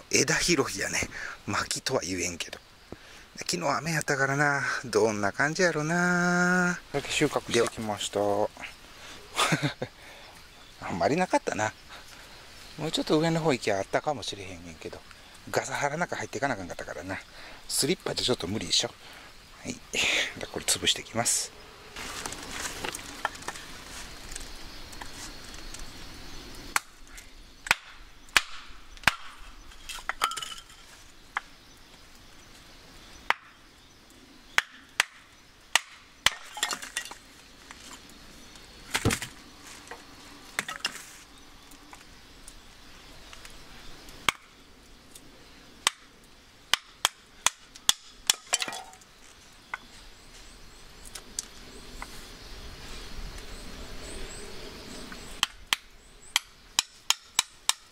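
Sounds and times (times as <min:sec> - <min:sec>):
hatchet chopping wood: 0:26.7 - 0:27.0, 0:27.6 - 0:29.4, 0:33.3 - 0:33.5, 0:34.6 - 0:37.2, 0:44.2 - 0:44.5, 0:45.8 - 0:46.1, 0:46.7 - 0:49.0, 0:55.4 - 0:57.9.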